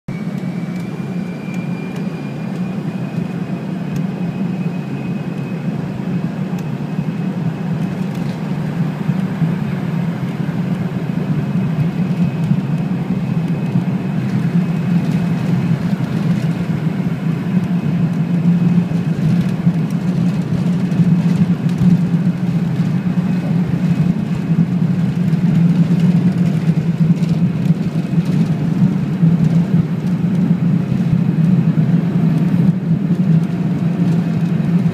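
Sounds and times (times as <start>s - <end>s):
faint high whine: 0.1s - 7.2s
jet engines rumbling in cabin: 0.1s - 34.9s.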